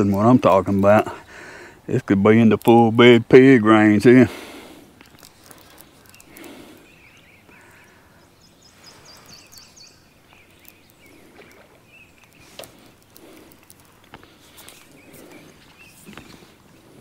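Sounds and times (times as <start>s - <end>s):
sharp clicks: 5.0s - 6.6s.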